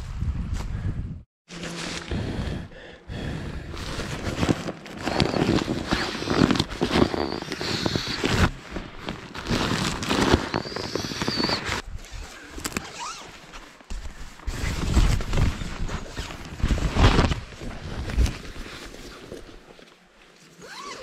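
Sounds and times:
rustling fabric: 0:03.8 - 0:21.0
brief squeaks: 0:05.0 - 0:08.5, 0:10.2 - 0:13.3.

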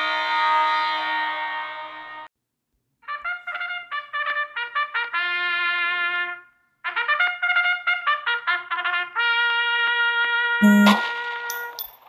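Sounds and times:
brass music led by trumpets: 0:03.1 - 0:11.5.

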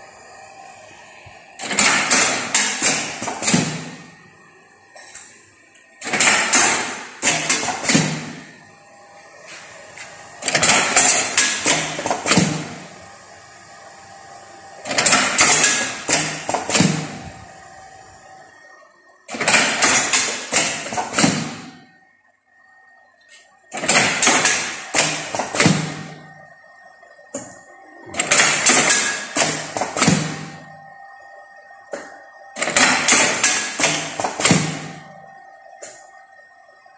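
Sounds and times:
machine clacks and knocks: 0:01.6 - 0:04.1, 0:06.0 - 0:08.4, 0:10.4 - 0:12.8, 0:14.8 - 0:17.2, 0:19.3 - 0:21.8, 0:23.8 - 0:26.2, 0:28.1 - 0:30.6, 0:32.6 - 0:35.0
faint steady whine: 0:02.2 - 0:06.0, 0:07.4 - 0:36.9.

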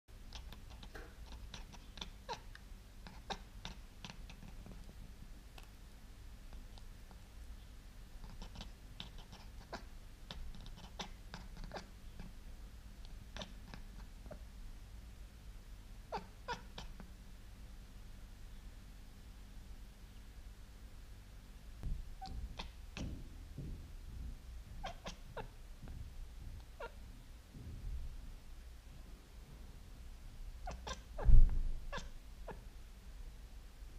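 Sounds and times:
cat chattering: 0:00.3 - 0:04.9, 0:08.2 - 0:12.3, 0:13.2 - 0:14.4, 0:16.1 - 0:17.0, 0:22.2 - 0:23.1, 0:24.8 - 0:25.6, 0:26.7 - 0:27.0, 0:30.6 - 0:31.3, 0:31.9 - 0:32.7.

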